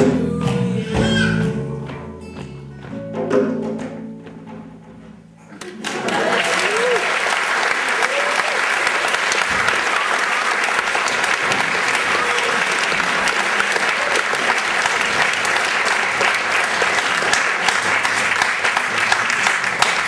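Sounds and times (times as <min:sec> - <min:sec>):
audience applauding: 0:05.5 - 0:20.0.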